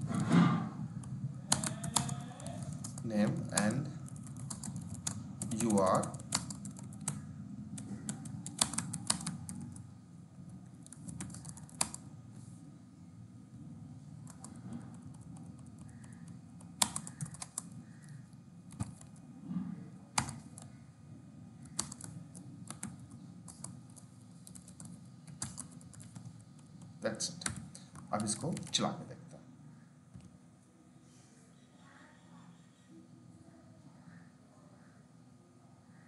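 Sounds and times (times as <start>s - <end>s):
low background hum: 0.0s - 36.0s
keyboard typing: 1.0s - 9.9s, 10.5s - 12.1s, 14.2s - 19.3s, 20.1s - 20.8s, 21.6s - 28.9s.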